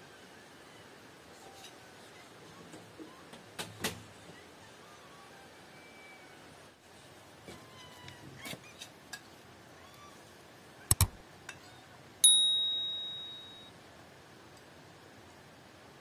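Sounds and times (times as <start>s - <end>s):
sharp clicks: 10.9s - 11.2s
bright bell ding: 12.2s - 13.7s.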